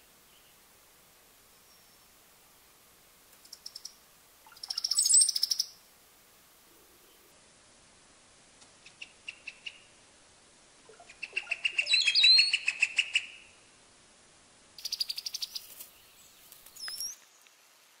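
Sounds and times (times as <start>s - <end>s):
birds chirping: 3.4s - 5.8s, 10.9s - 13.5s, 14.8s - 17.6s.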